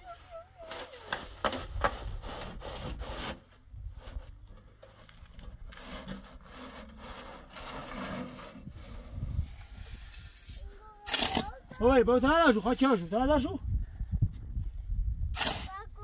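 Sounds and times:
shovel scraping on concrete: 0.8s - 11.8s, 15.4s - 15.8s.

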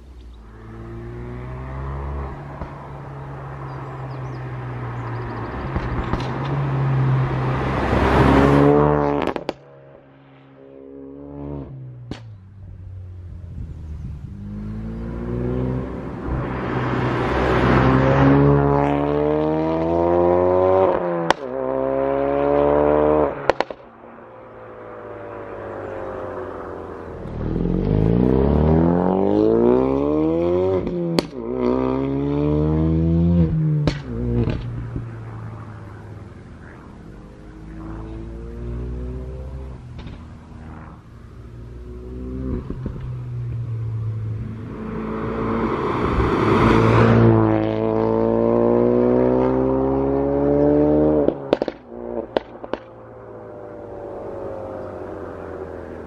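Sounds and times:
car engine revving: 0.0s - 23.8s, 24.4s - 56.0s
exhaust pops and bangs: 5.7s - 6.5s, 33.8s - 35.1s, 40.0s - 40.3s, 51.5s - 52.9s.

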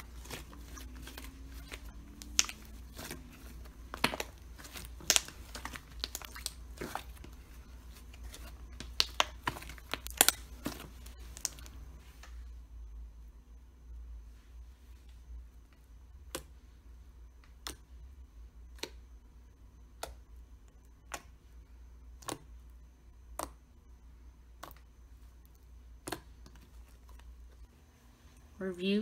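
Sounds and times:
low steady hum: 0.0s - 29.0s
slime clicking pops: 2.2s - 3.1s, 3.9s - 7.0s, 8.8s - 10.4s.

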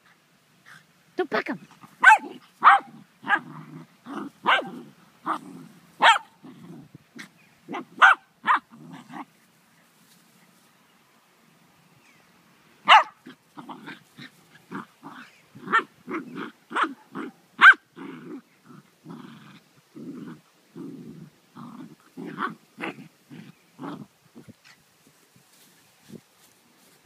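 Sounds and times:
dogs growling and yelping: 1.8s - 9.4s, 13.2s - 24.7s
dog barking: 2.0s - 3.5s, 4.4s - 4.8s, 6.0s - 6.3s, 7.7s - 8.6s, 12.9s - 13.2s, 16.7s - 17.8s.

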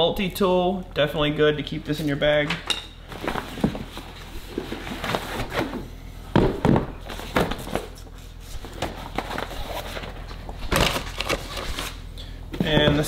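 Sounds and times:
knocks and thumps: 6.3s - 7.6s.

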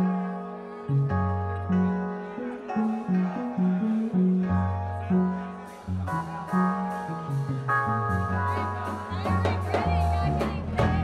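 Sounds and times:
bass guitar low notes: 0.0s - 11.0s
jazz-funk band playing: 0.0s - 11.0s
drum kit cymbal beat: 5.7s - 11.0s.

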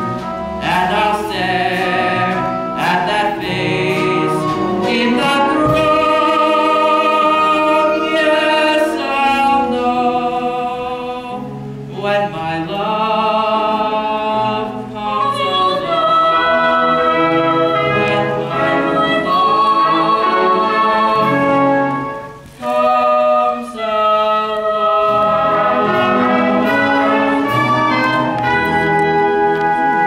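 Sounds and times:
orchestra playing: 0.0s - 30.0s.

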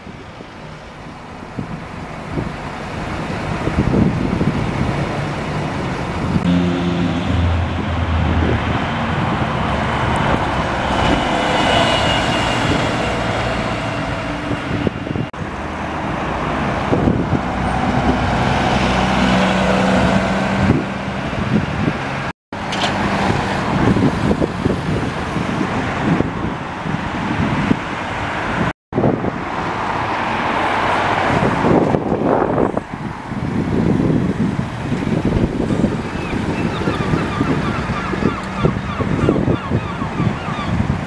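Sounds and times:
diesel engines running: 0.0s - 27.0s
road traffic passing: 0.0s - 41.0s.

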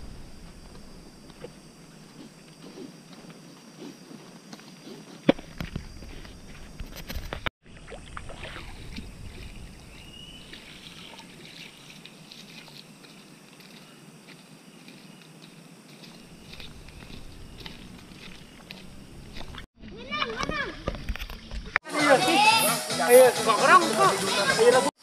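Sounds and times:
footsteps on dry leaves: 10.4s - 19.7s
twigs clicking underfoot: 10.5s - 21.7s.

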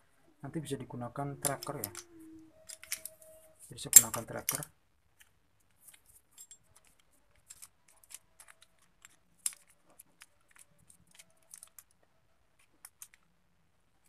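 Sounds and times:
metallic clicks of tool handling: 1.4s - 4.7s.

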